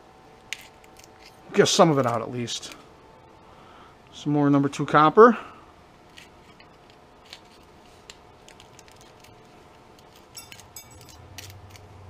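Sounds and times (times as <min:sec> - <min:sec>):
steel pick scratching wire: 0:10.0 - 0:11.9.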